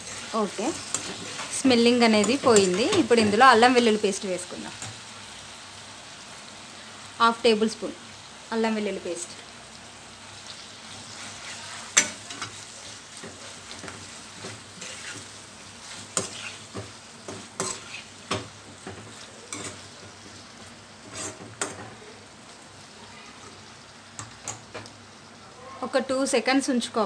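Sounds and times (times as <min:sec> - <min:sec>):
metal spatula scraping pan: 0:00.0 - 0:03.4, 0:11.1 - 0:20.0, 0:21.0 - 0:21.9
food sizzling in oil: 0:00.0 - 0:27.0.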